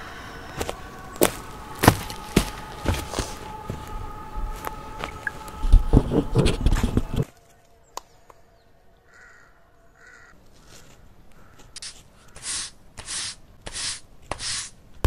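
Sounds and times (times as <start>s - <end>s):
faint bird call: 7.4s - 12.5s
stick scraping dry soil: 11.6s - 14.8s.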